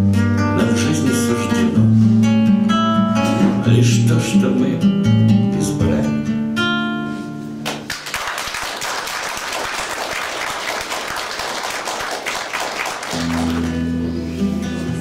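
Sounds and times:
audience applauding: 0:07.7 - 0:13.9
classical guitar chord: 0:13.2 - 0:15.0.

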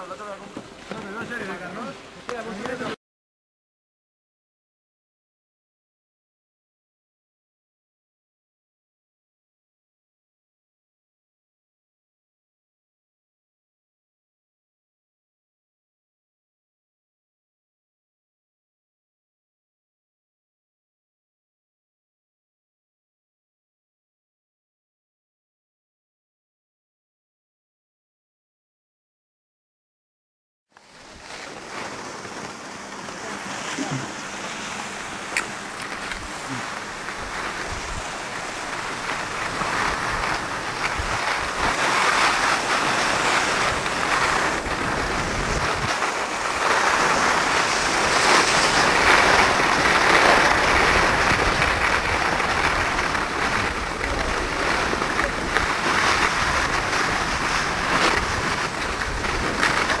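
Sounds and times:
skis scraping over snow: 0:00.0 - 0:03.0, 0:30.7 - 1:00.0
wind on microphone: 0:30.9 - 1:00.0.

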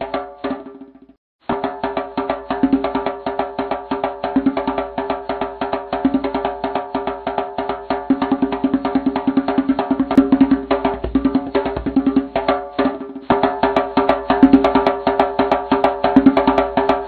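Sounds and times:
wood-block percussion beat: 0:01.5 - 0:17.0.

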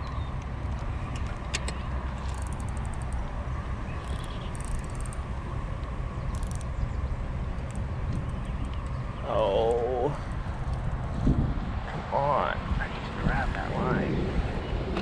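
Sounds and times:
wind rumble on microphone: 0:00.0 - 0:15.0
fishing reel ticking: 0:02.2 - 0:03.2, 0:04.0 - 0:05.3, 0:06.3 - 0:06.7.

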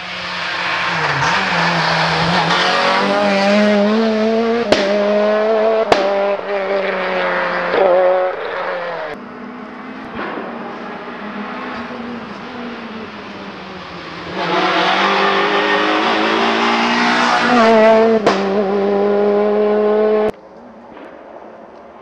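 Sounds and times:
car engine revving hard: 0:00.5 - 0:20.3
sharp crack: 0:04.7 - 0:05.2, 0:05.9 - 0:06.4, 0:10.0 - 0:11.1, 0:20.8 - 0:22.0.

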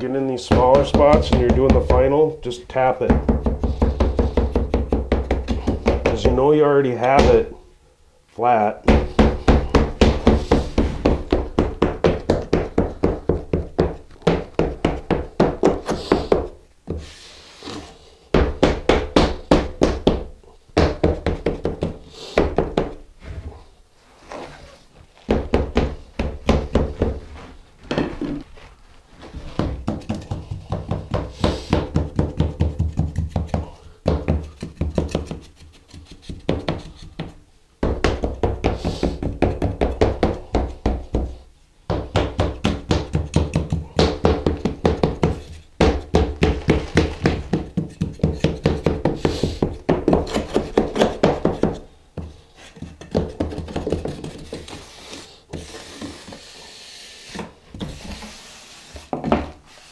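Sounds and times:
hand float tapping mortar: 0:00.5 - 0:02.2, 0:03.0 - 0:06.4, 0:29.4 - 0:41.3, 0:41.9 - 0:54.7.

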